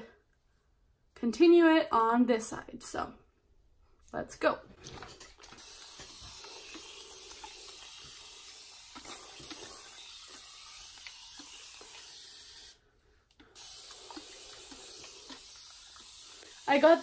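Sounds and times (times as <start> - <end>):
spray bottle hissing: 5.4 - 17.0.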